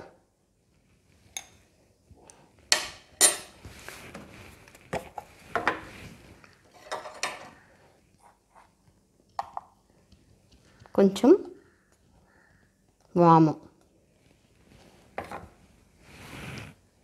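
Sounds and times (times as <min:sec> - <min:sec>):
spoon scraping through flour: 0:16.0 - 0:16.9.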